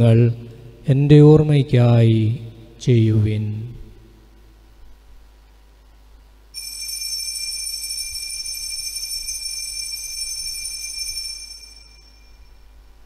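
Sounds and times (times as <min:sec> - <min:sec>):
bell ringing: 0:06.6 - 0:12.8.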